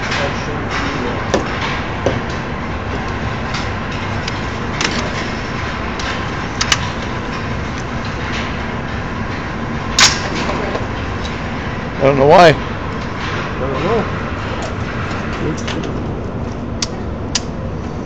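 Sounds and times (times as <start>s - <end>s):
steady rushing noise: 0.0s - 18.0s.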